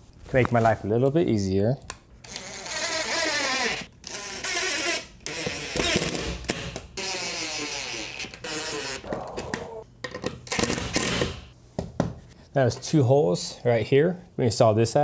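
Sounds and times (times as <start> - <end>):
power drill driving screws: 2.2 - 8.1.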